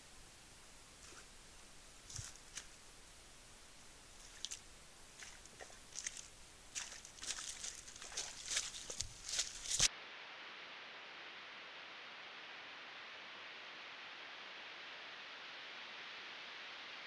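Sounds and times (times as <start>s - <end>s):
dry leaves crackling and rustling: 5.2s - 9.9s.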